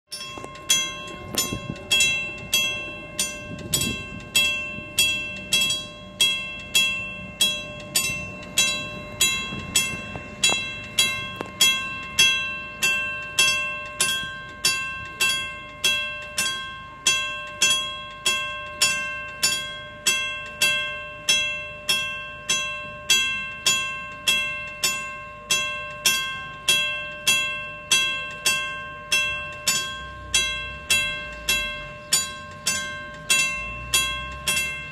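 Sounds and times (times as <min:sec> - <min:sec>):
level-crossing warning bell: 0:00.1 - 0:34.9.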